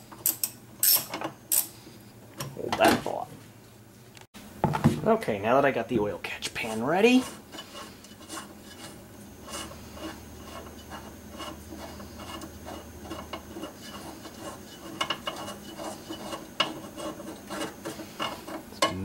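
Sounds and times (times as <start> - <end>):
wrench clicking: 0.2 - 1.7
metal scraping on metal: 6.5 - 19.0.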